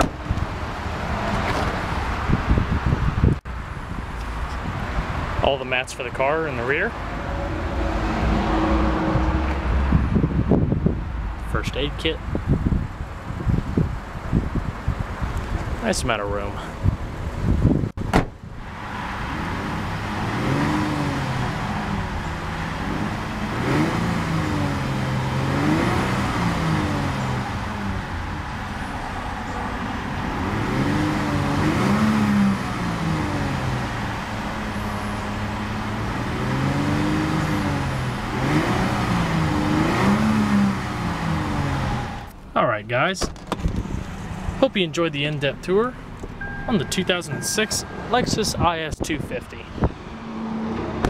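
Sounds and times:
car engine revving: 6.2s - 15.5s, 18.6s - 42.4s
car trunk lid thump: 18.0s - 18.4s.

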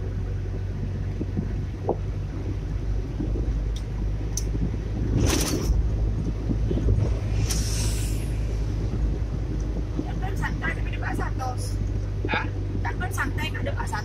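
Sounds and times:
car cabin engine and road rumble: 0.0s - 14.0s
short hissing swooshes: 7.0s - 8.9s.

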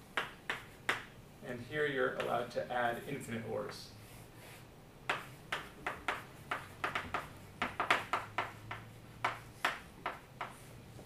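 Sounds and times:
chalk writing on blackboard: 0.2s - 1.1s, 4.0s - 10.8s.

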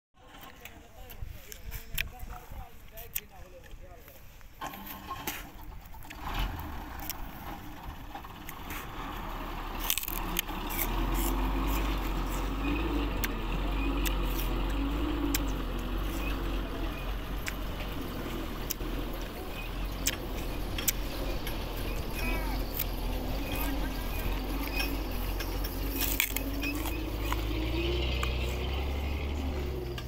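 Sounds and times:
engine rumble: 0.2s - 30.0s
sharp clicks and crackles: 9.7s - 28.4s.

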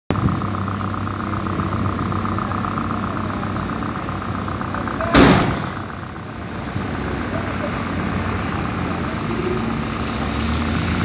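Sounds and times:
diesel machinery droning: 0.1s - 11.0s
loud burst of noise: 5.0s - 7.0s.

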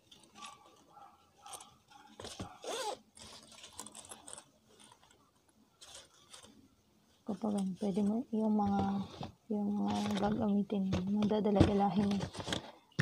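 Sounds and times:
rustling of satin pouch: 0.1s - 5.2s.

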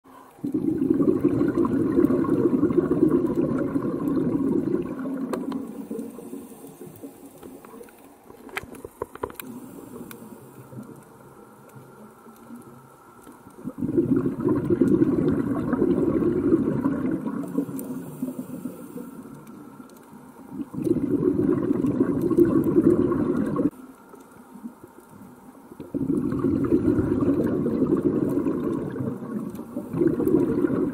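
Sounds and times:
underwater hiss: 0.1s - 8.1s, 8.8s - 24.6s
bubbling exhalations underwater: 0.4s - 7.6s, 13.6s - 18.8s, 20.4s - 23.8s, 25.8s - 30.9s.

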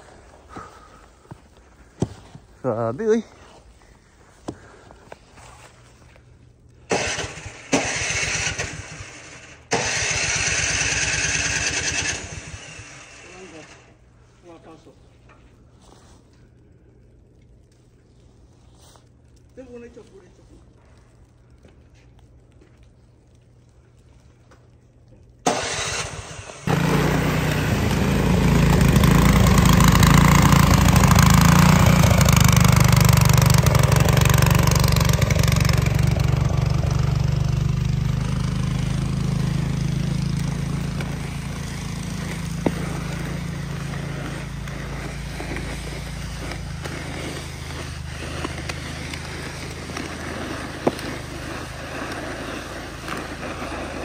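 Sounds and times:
engine starting and running: 6.8s - 14.0s, 25.4s - 54.0s.

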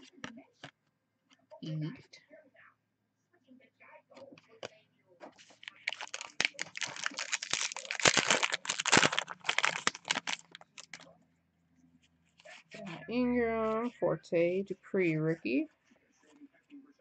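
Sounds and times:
foil wrapper tearing and crinkling: 5.6s - 11.0s.

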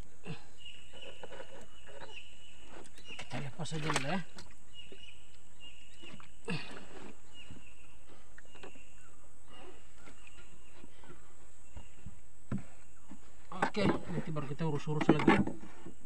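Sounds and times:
high chirping calls: 0.5s - 6.5s.

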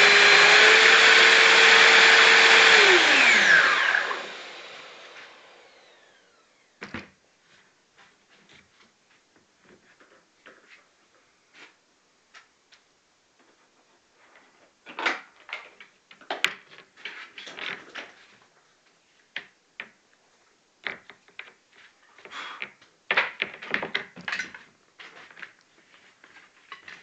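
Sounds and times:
belt sander whining: 0.0s - 6.8s.

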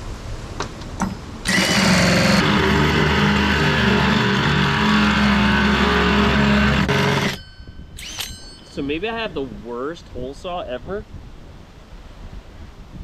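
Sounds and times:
power drill cutting with hole saw: 1.4s - 7.4s, 8.0s - 8.4s.

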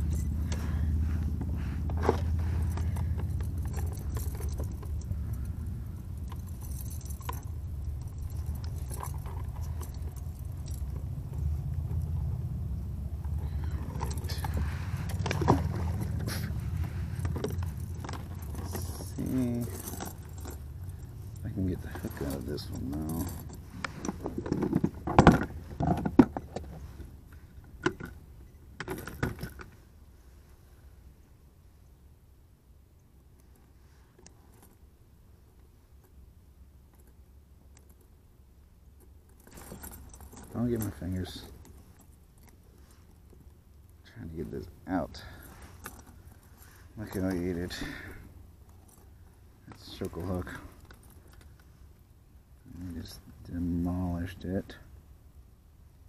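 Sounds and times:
low rumble: 0.0s - 26.0s
metal chain clinking and rattling: 0.0s - 29.8s, 38.9s - 51.9s
metal clips jangling on plastic deck: 0.0s - 29.8s, 38.8s - 54.6s.

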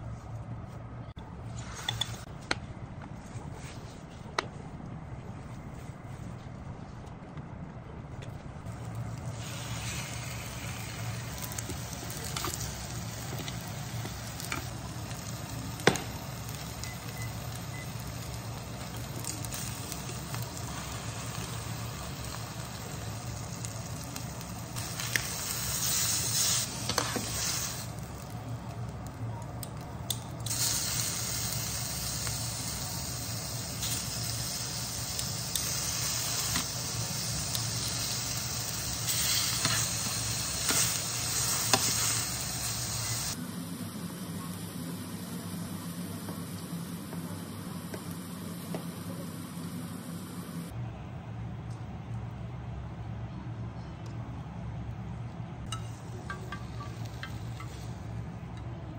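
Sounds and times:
meat sizzling in oil: 9.2s - 28.3s, 30.5s - 43.4s.

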